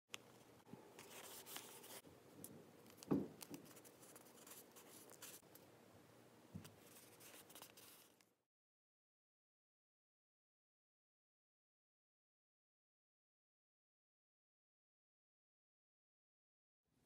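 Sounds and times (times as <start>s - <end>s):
fingers smoothing paper: 1.0s - 2.0s, 6.8s - 8.2s
glue stick rubbing paper: 1.0s - 2.0s, 2.9s - 5.5s, 6.8s - 8.2s
soft thump: 3.1s - 3.4s
small knock: 3.1s - 3.5s.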